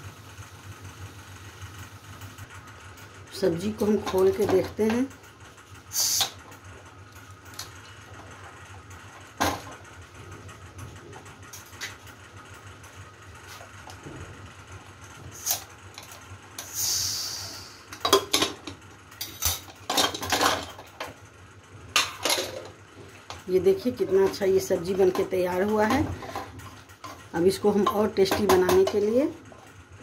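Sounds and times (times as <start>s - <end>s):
steam hissing: 5.9s - 6.4s, 16.6s - 17.9s
metal lid clattering: 18.0s - 20.9s, 22.0s - 22.7s.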